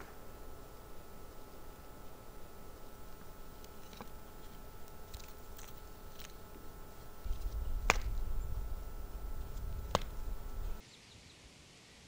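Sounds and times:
stones clicking and scraping on dirt: 0:03.6 - 0:06.5
low rumble: 0:07.2 - 0:10.8.

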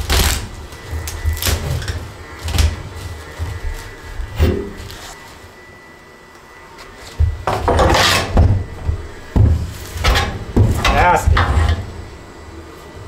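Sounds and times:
dull thuds: 0:07.2 - 0:12.3
hand tool scraping wood: 0:07.7 - 0:08.4.

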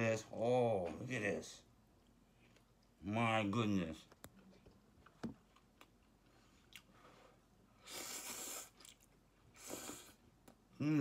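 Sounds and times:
person slurping noodles: 0:07.8 - 0:09.0, 0:09.6 - 0:10.2.

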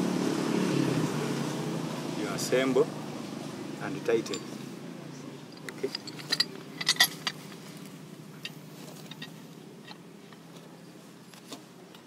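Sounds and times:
metal parts clinking: 0:04.2 - 0:04.6, 0:05.5 - 0:10.0.

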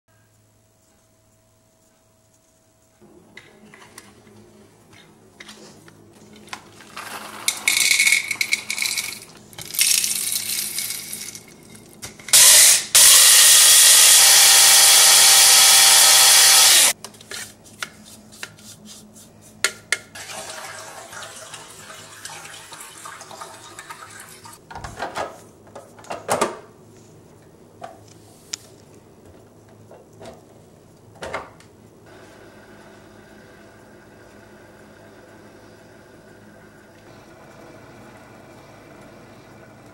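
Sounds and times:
coffee grinder whirring: 0:06.6 - 0:11.5, 0:12.3 - 0:17.0.

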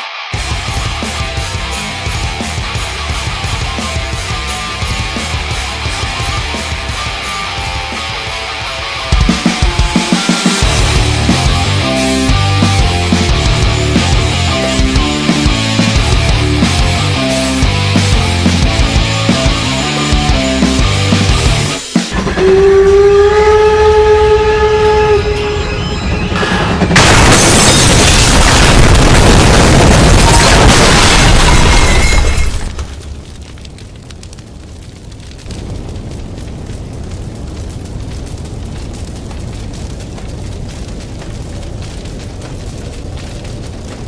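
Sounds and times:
large fire burning: 0:00.0 - 0:44.0
steam whistle: 0:22.1 - 0:26.6
train rushing past: 0:22.1 - 0:27.1.

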